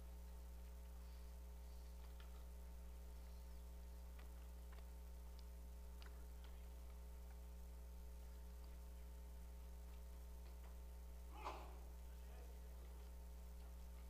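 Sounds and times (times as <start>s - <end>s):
low electrical hum: 0.0s - 14.0s
faint clicks and ticks: 0.2s - 11.1s.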